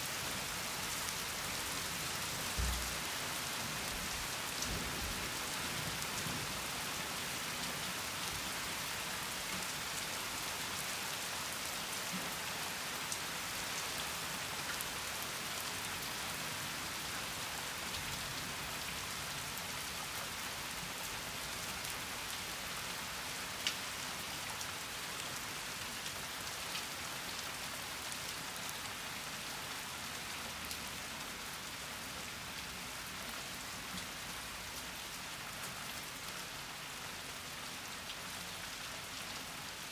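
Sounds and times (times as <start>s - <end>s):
heavy rain falling: 0.0s - 18.7s.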